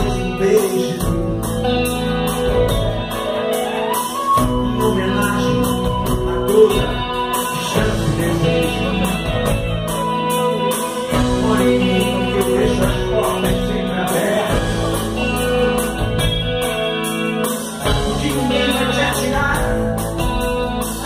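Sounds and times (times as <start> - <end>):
bass guitar: 0.0 - 21.0
drum kit: 0.0 - 21.0
electric guitars: 0.0 - 21.0.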